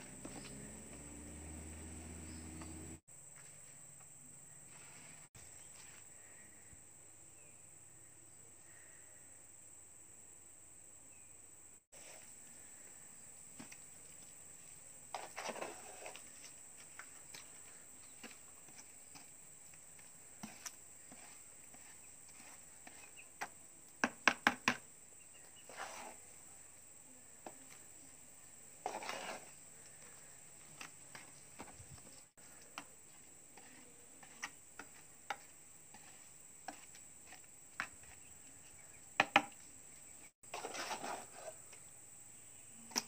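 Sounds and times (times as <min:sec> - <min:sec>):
trowel scraping wet mortar: 0:15.1 - 0:16.5, 0:20.0 - 0:23.6, 0:25.5 - 0:26.3, 0:28.8 - 0:29.6, 0:33.1 - 0:38.2, 0:40.4 - 0:41.7.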